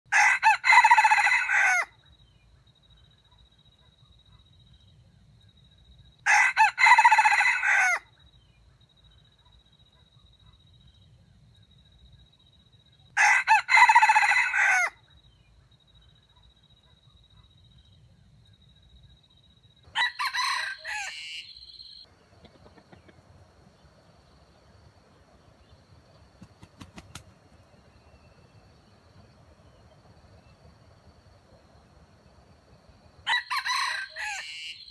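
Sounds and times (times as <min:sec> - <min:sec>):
rooster crowing: 0:00.1 - 0:02.0, 0:06.2 - 0:08.1, 0:13.2 - 0:15.0, 0:19.9 - 0:21.9, 0:33.2 - 0:34.9.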